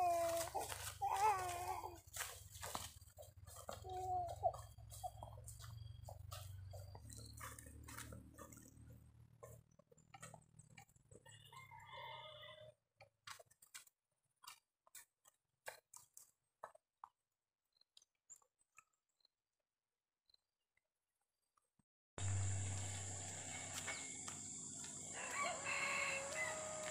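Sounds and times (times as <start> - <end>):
low steady hum: 22.2 - 25.2.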